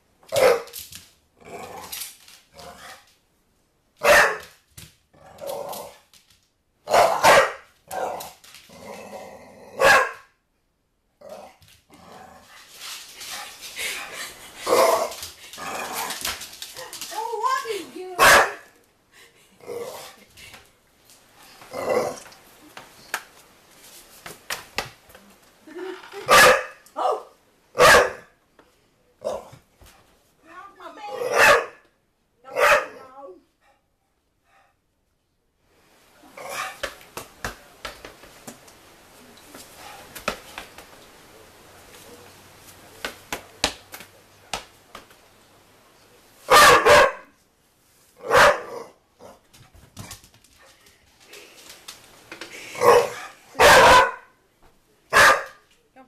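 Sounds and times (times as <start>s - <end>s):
puppy barking: 0.3s - 0.7s, 4.0s - 4.5s, 6.9s - 8.1s, 9.8s - 10.3s, 18.2s - 18.7s, 26.3s - 28.3s, 31.2s - 31.8s, 32.5s - 33.0s, 46.5s - 47.4s, 48.2s - 48.8s, 52.8s - 54.3s, 55.1s - 55.6s.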